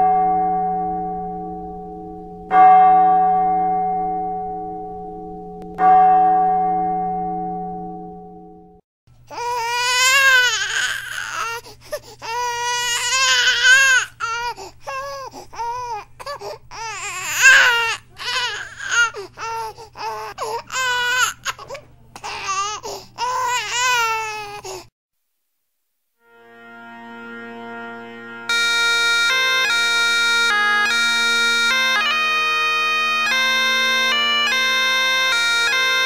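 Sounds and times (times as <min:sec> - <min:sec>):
bell tone: 0:00.0 - 0:08.8
newborn baby crying: 0:09.3 - 0:24.9.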